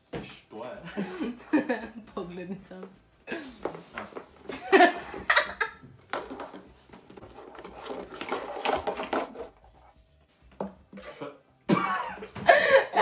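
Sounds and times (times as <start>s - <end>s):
plastic webcam knocking and clattering: 6.0s - 9.5s.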